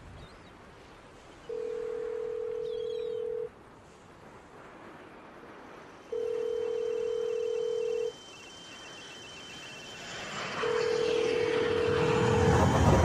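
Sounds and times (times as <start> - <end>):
faint line hiss: 0.8 - 12.8
telephone ringback tone: 1.5 - 3.5, 6.1 - 12.5.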